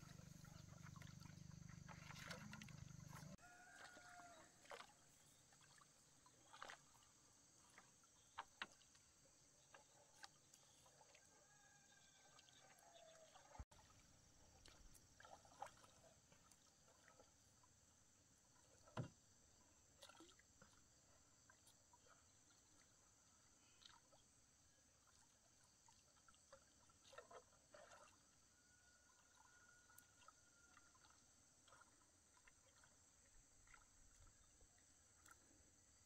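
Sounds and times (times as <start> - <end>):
high insect hum: 0.0 - 8.4
light water sounds: 0.0 - 36.0.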